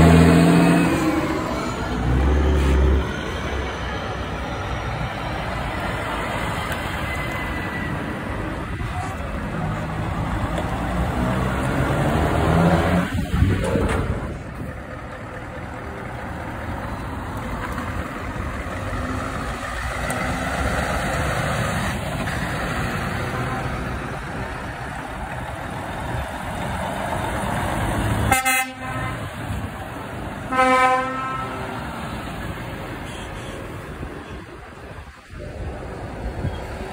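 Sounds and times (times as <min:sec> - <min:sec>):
trucks driving past: 0:00.0 - 0:36.9
truck horn blasts: 0:28.2 - 0:29.6, 0:30.5 - 0:31.9, 0:33.0 - 0:34.4.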